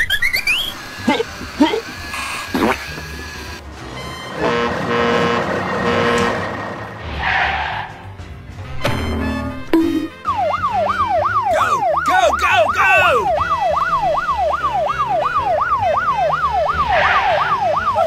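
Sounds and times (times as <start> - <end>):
electronic yelping siren: 0.0 - 3.4, 10.2 - 18.0.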